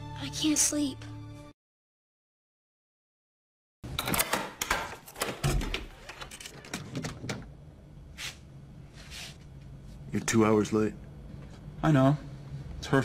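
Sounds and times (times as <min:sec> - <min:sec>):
door locks clicking and rattling: 0:03.9 - 0:07.5
door opening: 0:03.9 - 0:07.6.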